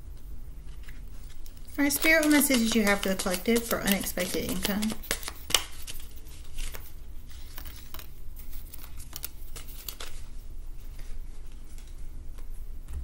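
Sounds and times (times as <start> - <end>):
cards shuffling: 0.6 - 13.0
cards slapping on wooden table: 1.8 - 6.0.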